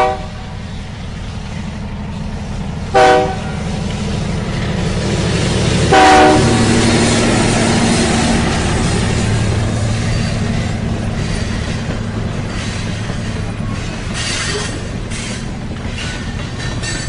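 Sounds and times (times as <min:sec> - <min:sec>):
train horn blasts: 0:00.0 - 0:00.7, 0:02.9 - 0:03.8, 0:05.8 - 0:07.2
train rumble: 0:00.0 - 0:17.0.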